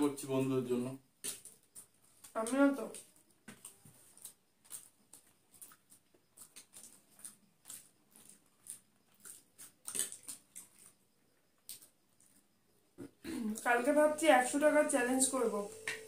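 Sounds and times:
people chewing and lip-smacking: 0:03.0 - 0:12.5.

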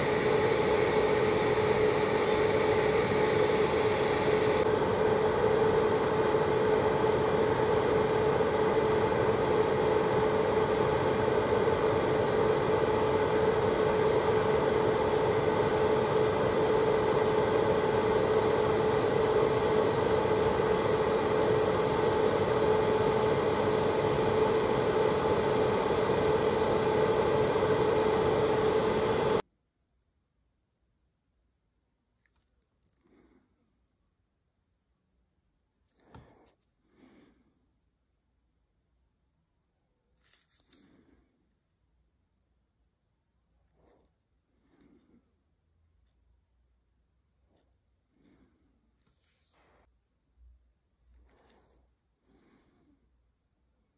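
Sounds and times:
dust extractor fan humming: 0:00.0 - 0:29.4
electric nail drill whining: 0:00.0 - 0:29.4.

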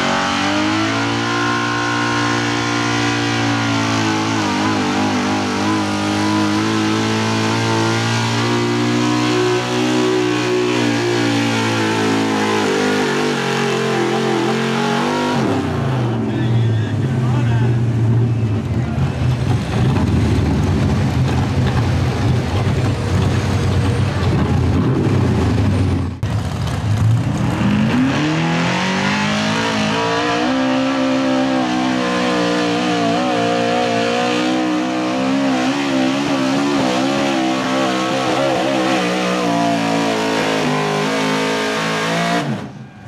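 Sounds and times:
loud rough engine running: 0:00.0 - 0:30.8
pickup engine at full throttle: 0:00.0 - 0:43.0.

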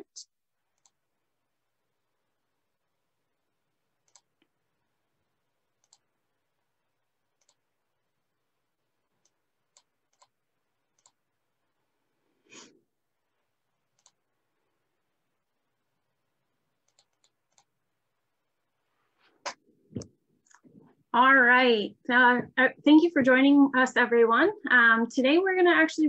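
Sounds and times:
computer mouse clicks: 0:00.8 - 0:01.0, 0:04.0 - 0:04.5, 0:05.8 - 0:06.1, 0:07.4 - 0:07.6, 0:09.2 - 0:11.2, 0:13.9 - 0:14.2, 0:16.8 - 0:17.7.

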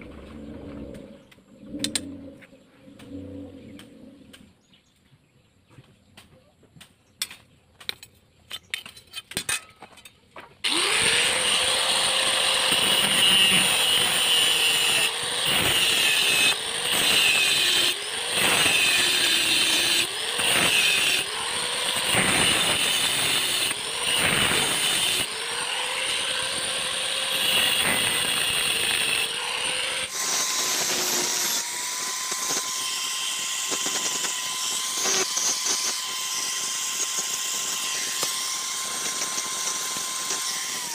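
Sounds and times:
angle grinder cutting metal: 0:10.6 - 0:40.9.

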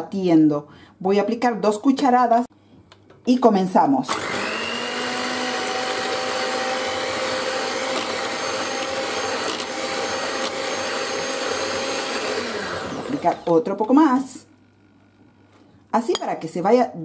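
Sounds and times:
electric hand mixer whirring: 0:04.1 - 0:13.7.

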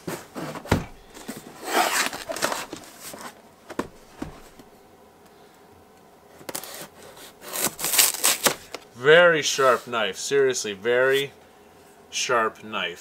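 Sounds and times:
cardboard box scraping rustles: 0:00.0 - 0:04.7, 0:06.5 - 0:08.8.

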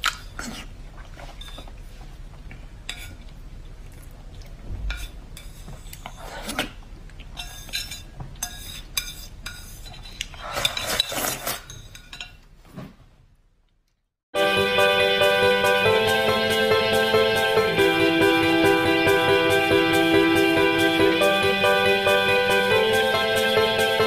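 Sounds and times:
slurping noodles: 0:00.1 - 0:01.7.

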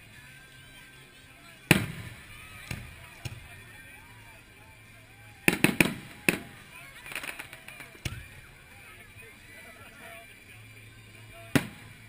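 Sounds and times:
fireworks bursting: 0:01.7 - 0:03.8, 0:05.4 - 0:08.6, 0:11.4 - 0:12.0.

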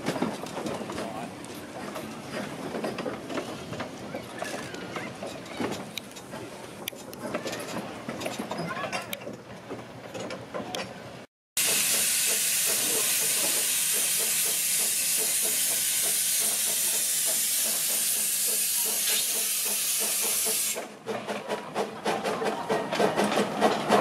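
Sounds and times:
loud hiss of steam: 0:11.6 - 0:20.9.

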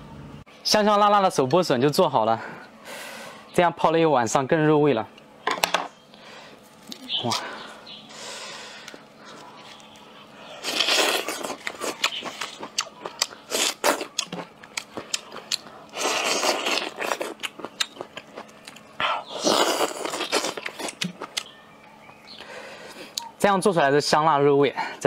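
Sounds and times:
husk tearing off bamboo shoot: 0:10.6 - 0:12.6
crunchy bite: 0:10.6 - 0:21.5.

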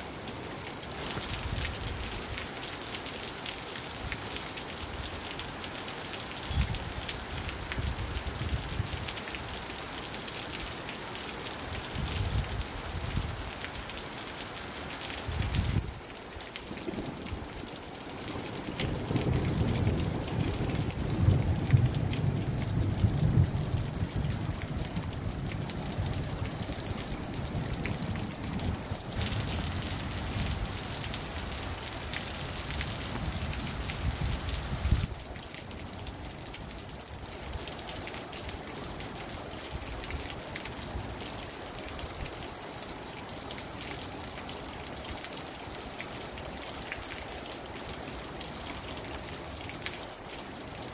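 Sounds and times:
steady rain falling: 0:00.0 - 0:50.9
low rumble of thunder: 0:18.7 - 0:35.1.

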